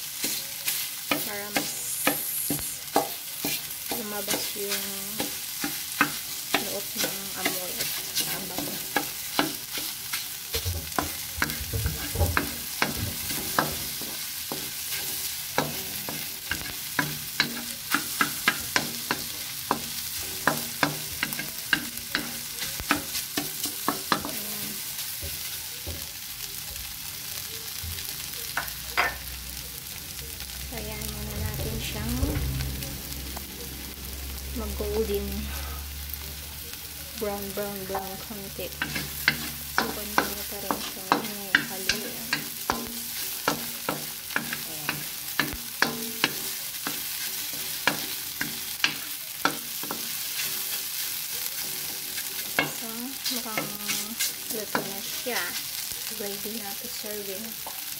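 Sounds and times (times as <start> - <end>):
spatula scraping metal wok: 0.0 - 25.6, 37.5 - 57.0
frying sizzle: 0.0 - 57.9.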